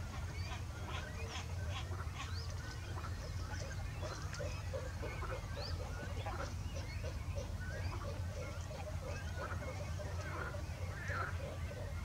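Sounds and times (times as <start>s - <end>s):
small birds chirping and whistling: 0.3s - 12.0s.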